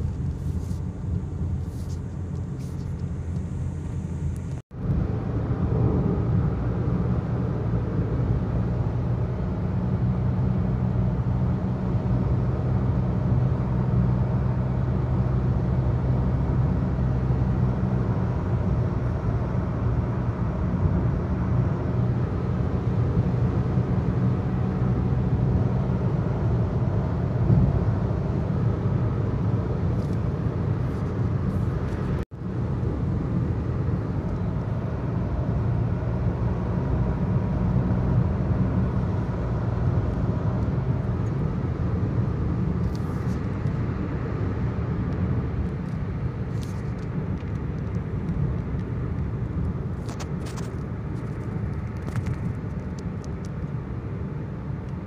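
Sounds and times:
car cabin engine hum: 0.0s - 55.0s
tyre and wind noise: 16.8s - 55.0s.

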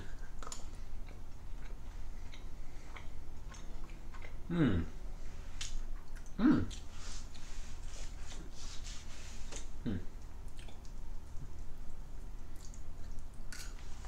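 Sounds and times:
person chewing: 0.0s - 4.8s, 5.5s - 8.4s, 9.5s - 11.0s, 12.4s - 14.0s
person humming mmm: 4.4s - 5.0s, 6.3s - 6.9s, 9.8s - 10.2s.

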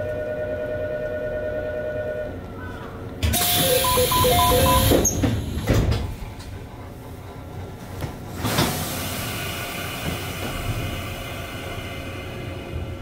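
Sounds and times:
air hiss of train doors: 3.2s - 3.9s, 4.6s - 13.0s
two-tone door chime: 3.3s - 5.0s
train idle noise: 3.3s - 13.0s.

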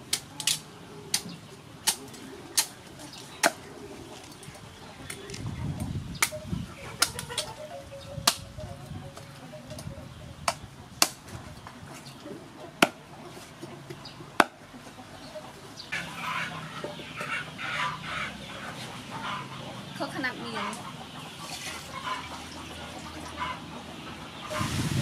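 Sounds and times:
bird calls: 0.0s - 25.0s
cleaver chopping on wooden board: 14.4s - 14.6s.

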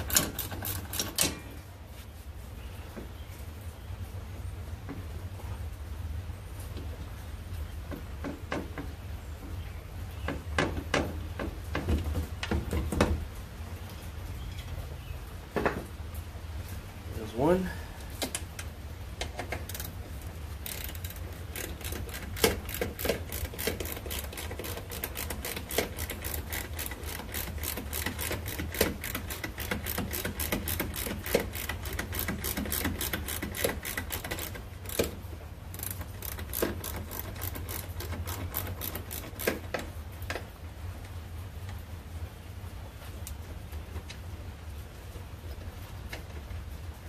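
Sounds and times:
ratchet wrench clicking: 0.0s - 1.4s, 19.2s - 20.0s, 20.6s - 39.8s.

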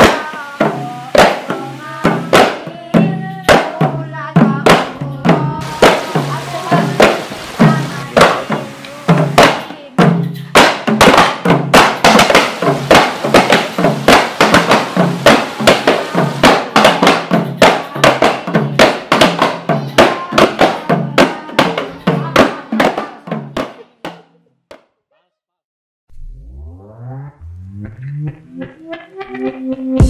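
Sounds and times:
hand drum strikes: 0.0s - 24.2s
repeating low tone: 26.1s - 30.0s.

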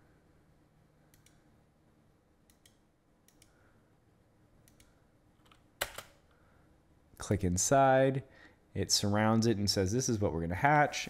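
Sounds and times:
computer mouse clicks: 1.1s - 1.4s, 2.5s - 3.6s, 4.6s - 6.2s.

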